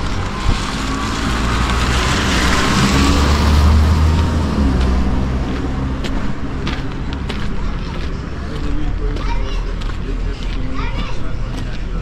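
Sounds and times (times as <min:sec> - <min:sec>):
vehicle passing by: 0:00.0 - 0:09.1.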